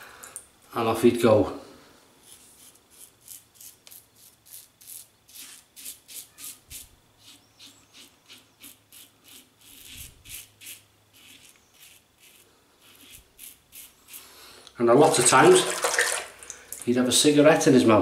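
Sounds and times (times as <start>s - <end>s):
razor scraping stubble: 2.2s - 14.4s.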